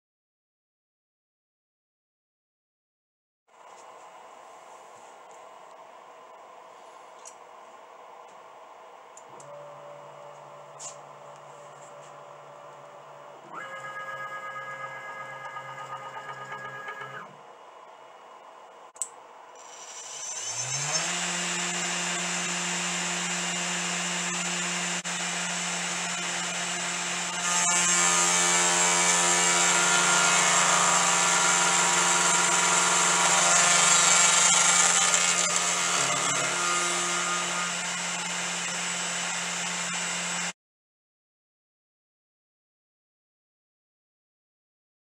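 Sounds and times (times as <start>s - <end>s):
router spindle whine: 9.3s - 17.4s, 19.6s - 40.5s
end mill milling metal: 25.7s - 40.0s.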